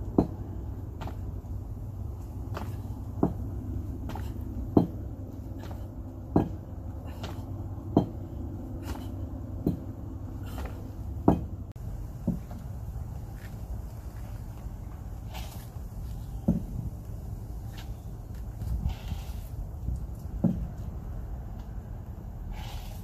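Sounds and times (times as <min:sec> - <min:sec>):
feet landing with thuds: 0:00.1 - 0:12.7.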